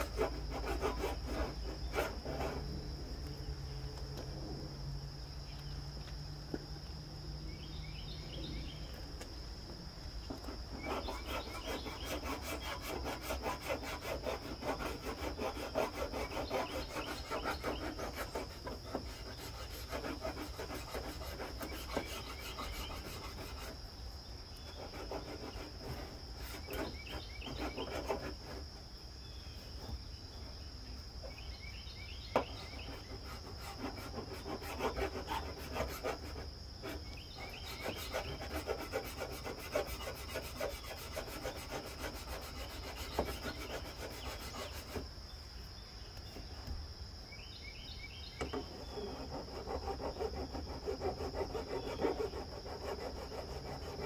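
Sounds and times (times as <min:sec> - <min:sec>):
metal file scraping: 0:00.0 - 0:02.7, 0:10.4 - 0:23.8, 0:24.7 - 0:28.6, 0:32.4 - 0:45.1, 0:48.4 - 0:54.0.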